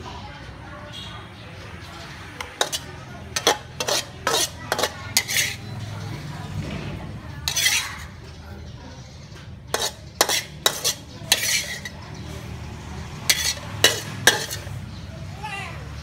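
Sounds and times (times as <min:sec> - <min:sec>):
metal spatula scraping a wok: 0:02.4 - 0:06.0, 0:07.4 - 0:08.2, 0:09.7 - 0:12.1, 0:13.2 - 0:14.8.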